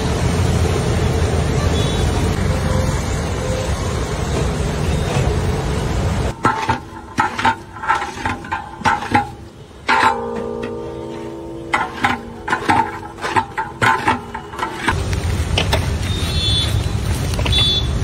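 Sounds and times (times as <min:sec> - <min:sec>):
ladle clanking against metal pot: 0:06.3 - 0:15.0.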